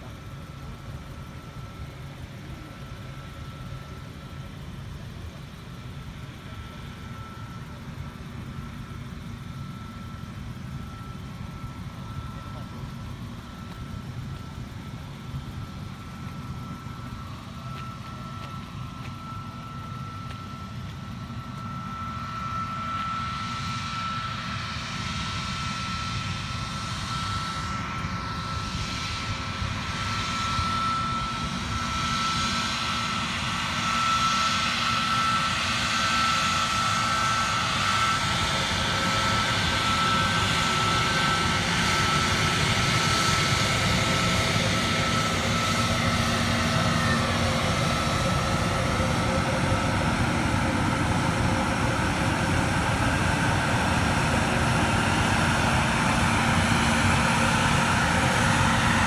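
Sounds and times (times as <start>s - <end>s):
jet engines whining: 0.0s - 59.0s.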